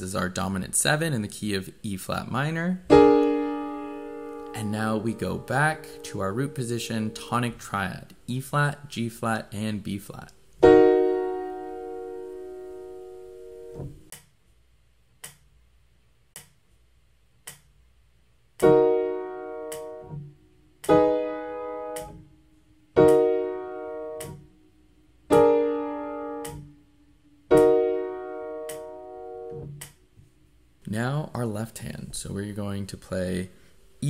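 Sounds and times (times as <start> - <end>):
piano playing block chords: 2.9 - 7.6, 10.6 - 14.1, 18.6 - 30.3.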